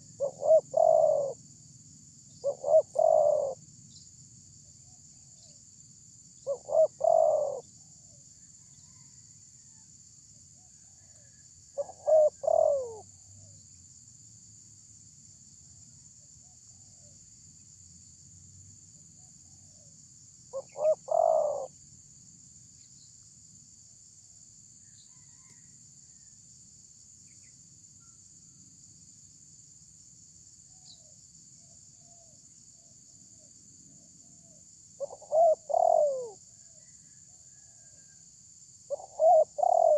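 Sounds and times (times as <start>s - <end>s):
dove cooing: 0.0s - 1.4s, 2.4s - 3.6s, 6.4s - 7.7s, 11.8s - 13.5s, 20.5s - 21.7s, 35.0s - 36.4s, 38.9s - 39.9s.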